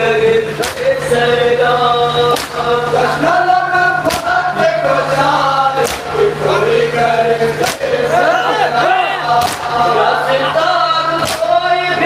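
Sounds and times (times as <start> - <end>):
men chanting a lament: 0.0 - 12.0
chest-beating slaps: 2.3 - 2.6, 4.0 - 4.4, 5.8 - 6.1, 7.6 - 7.9, 9.4 - 9.7, 11.2 - 11.5.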